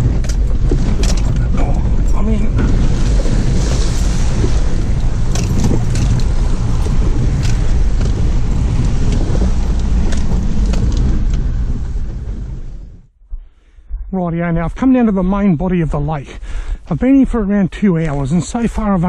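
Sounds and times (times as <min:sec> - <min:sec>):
vehicle body knocks and rattles: 0:00.0 - 0:03.6, 0:04.4 - 0:12.2
engine and road rumble: 0:00.0 - 0:14.1.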